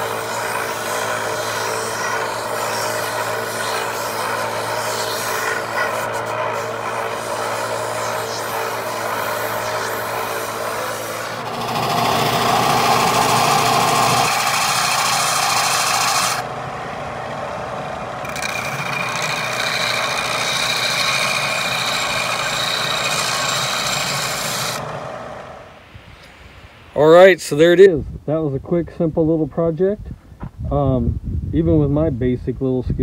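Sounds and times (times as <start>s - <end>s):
belt sander sanding wood: 0.0s - 25.8s
belt sander grinding steel: 0.0s - 26.3s.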